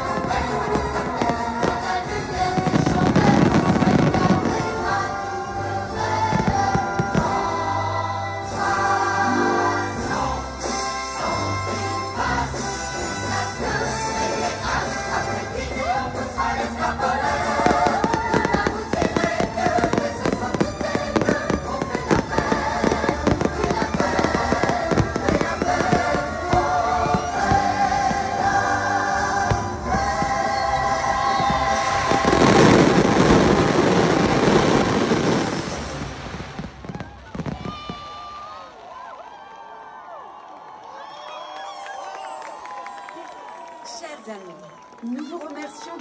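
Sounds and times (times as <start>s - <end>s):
fireworks bursting: 0.0s - 7.9s, 13.9s - 38.7s
music soundtrack: 0.0s - 37.3s.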